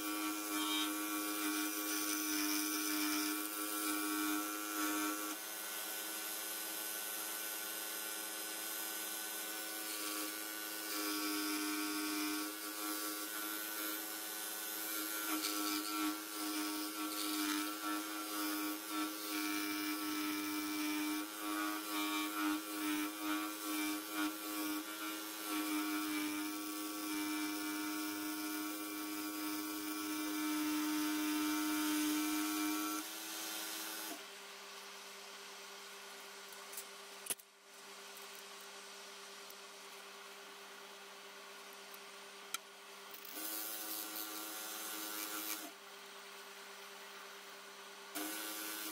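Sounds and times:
scroll saw cutting wood: 0.0 - 34.3, 43.2 - 45.8, 48.2 - 48.9.

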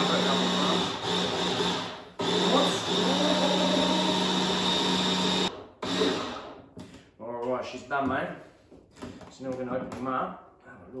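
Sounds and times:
stick blender blending liquid: 0.0 - 6.6.

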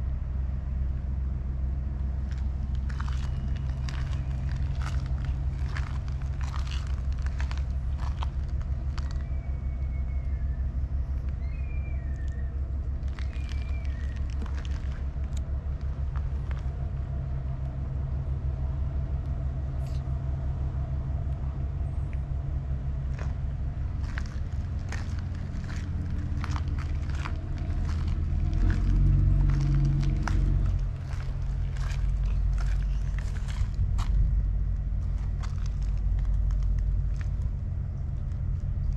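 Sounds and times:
engine idling: 0.0 - 38.9.

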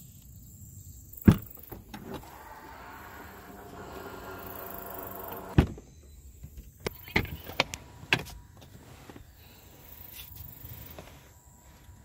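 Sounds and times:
tailgate motor whining: 1.3 - 6.0
tailgate thump: 5.3 - 5.8.

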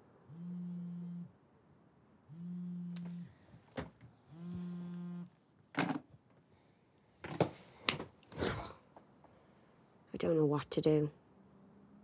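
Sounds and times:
steady low buzz: 0.0 - 1.4, 2.2 - 3.4, 4.3 - 5.3.

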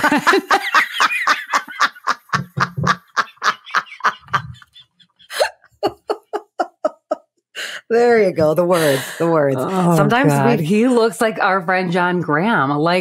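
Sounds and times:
woman laughing hard: 0.0 - 7.2.

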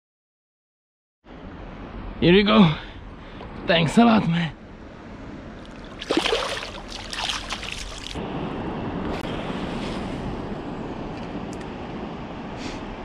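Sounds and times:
wind: 1.2 - 13.0
river water rushing: 5.6 - 8.2
water splashing: 5.6 - 8.2.

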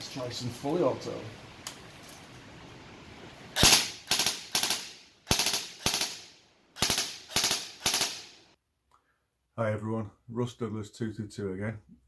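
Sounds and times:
airsoft gun automatic bursts: 3.6 - 6.2, 6.8 - 8.3.

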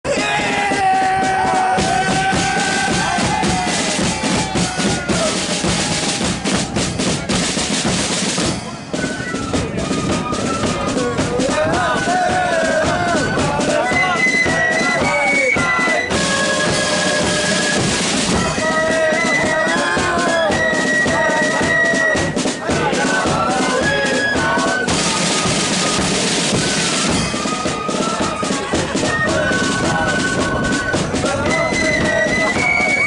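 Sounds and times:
flutes playing a tune: 0.1 - 33.0
snare drums: 0.1 - 33.0
bass drum beating: 0.2 - 8.7.

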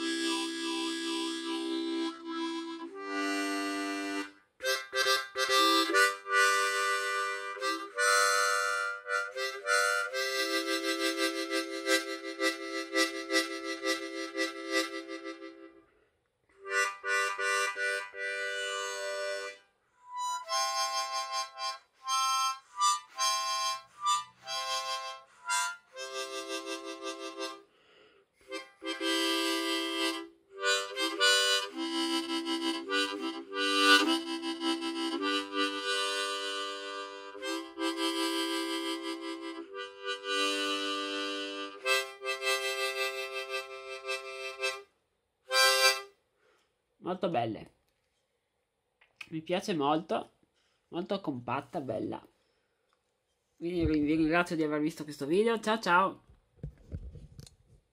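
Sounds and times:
harmonica playing: 0.0 - 15.9, 16.6 - 46.2
breaths: 15.8 - 16.3, 27.6 - 28.5, 46.3 - 46.8, 50.5 - 50.9, 52.3 - 53.0.

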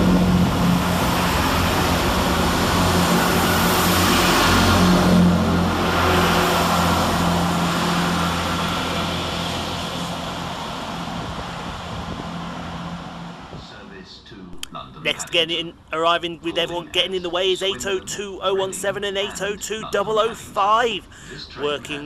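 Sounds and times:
rail noise: 0.0 - 13.8
diesel train engine humming: 0.0 - 13.9, 14.6 - 22.0.

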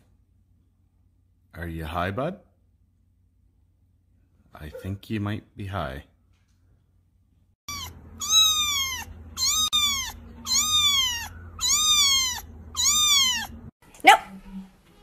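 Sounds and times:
kitten mewing: 7.7 - 13.7.

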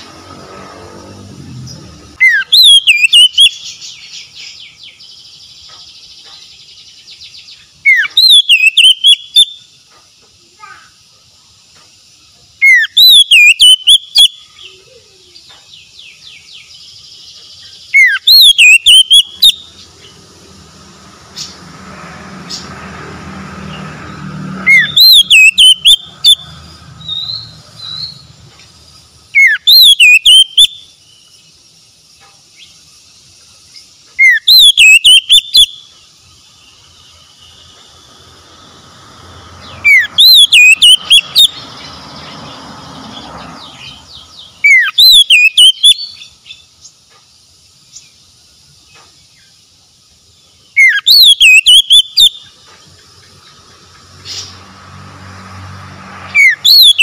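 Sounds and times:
bird singing chirping phrase: 0.0 - 9.7, 12.6 - 20.5, 22.4 - 28.4, 29.3 - 31.5, 33.8 - 35.9, 39.5 - 46.7, 50.6 - 54.6, 56.2 - 57.0.

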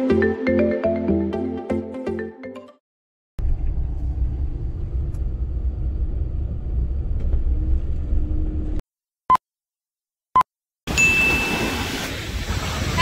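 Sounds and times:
van cabin rumble while driving: 3.4 - 8.8
short beep: 10.9 - 11.8.

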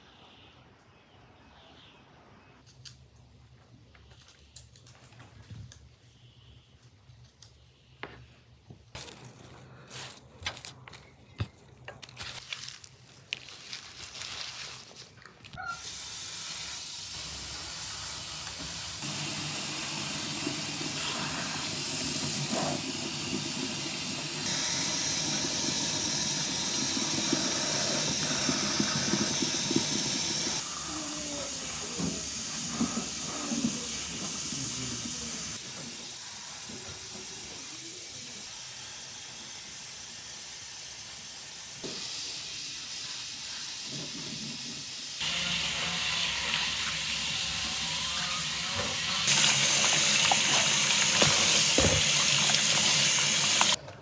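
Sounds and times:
tap water splashing on herbs: 49.3 - 53.8.

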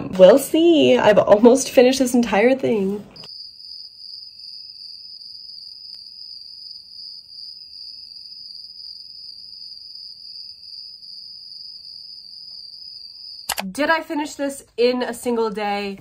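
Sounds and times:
crickets chirping: 3.2 - 14.2.

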